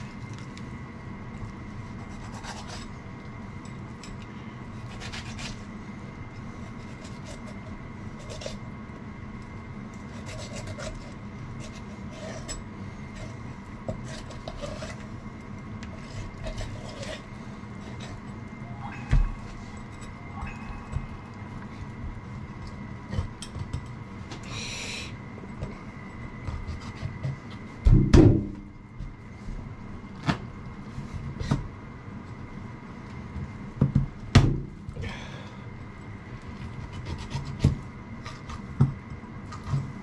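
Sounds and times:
steady hum: 0.0s - 40.0s
knife scraping turtle shell: 1.9s - 3.0s, 4.8s - 5.7s, 6.6s - 8.6s, 10.0s - 15.1s, 15.8s - 18.3s, 26.4s - 27.4s, 36.6s - 38.8s.

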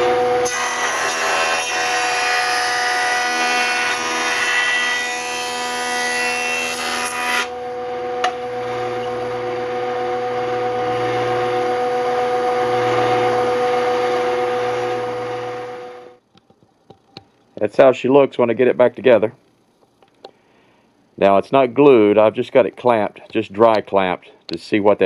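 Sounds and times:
jointer shaving board edge: 0.0s - 7.6s
jointer whine: 0.0s - 17.6s.

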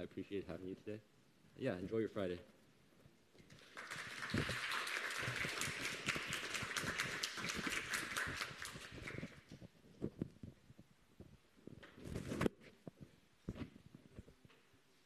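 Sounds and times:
crowd applauding: 3.5s - 9.4s.

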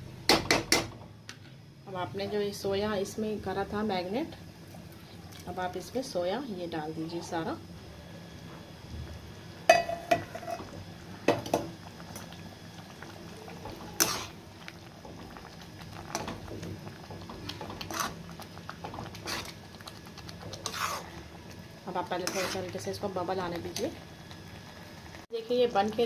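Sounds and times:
gravy bubbling: 10.8s - 25.3s
metal ladle scraping a pan: 13.6s - 14.4s, 17.5s - 18.2s, 18.8s - 19.6s, 20.5s - 21.2s, 22.2s - 22.8s.

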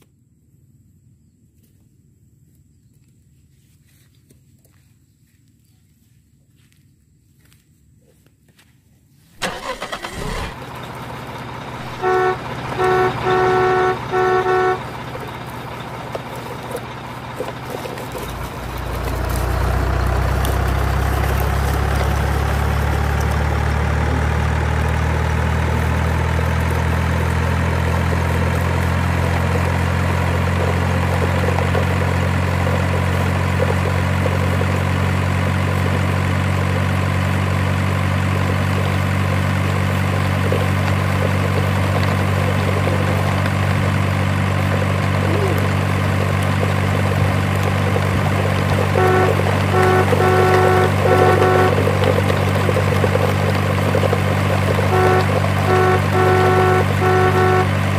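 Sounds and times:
truck horn beeps: 9.4s - 36.5s, 42.1s - 57.9s
truck engine starting and idling: 9.4s - 57.9s.

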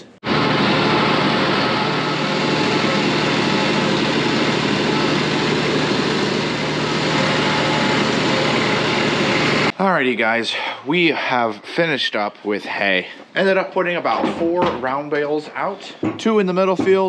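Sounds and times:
tractor engine running: 0.2s - 9.7s.

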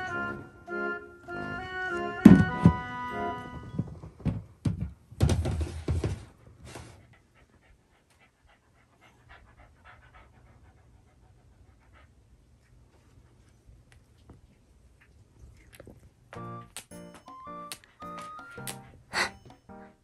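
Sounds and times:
dog panting: 6.7s - 13.7s.

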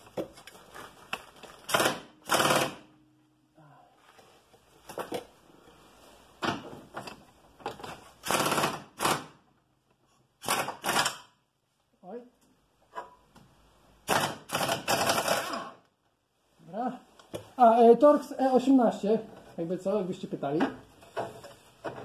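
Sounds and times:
pneumatic impact wrench rattling: 1.6s - 3.0s, 7.8s - 9.4s, 10.4s - 11.4s, 14.0s - 15.8s.

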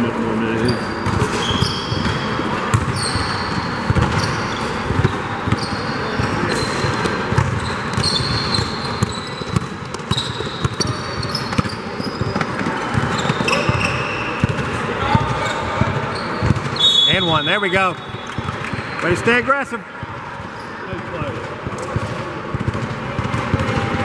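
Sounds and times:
sneakers squeaking on floor: 0.5s - 19.1s, 20.4s - 20.9s.

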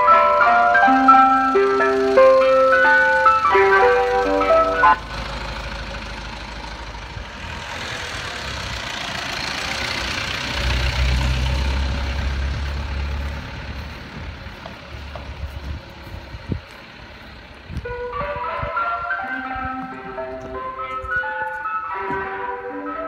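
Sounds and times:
ice cream van chime tune: 0.0s - 6.9s, 17.9s - 23.0s
van engine driving past: 0.0s - 21.4s.

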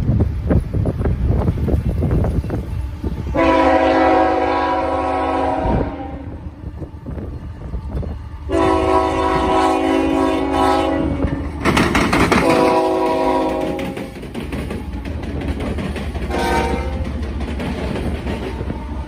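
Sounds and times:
low rumble of passing train: 0.0s - 19.0s
locomotive air horn blasts: 3.3s - 6.5s, 8.5s - 11.6s, 12.4s - 14.1s, 16.3s - 17.0s.

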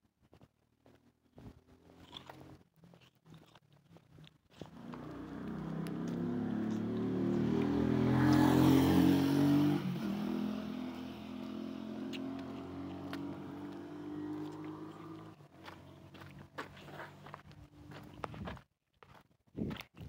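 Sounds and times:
vehicle engine passing by: 4.7s - 18.3s.

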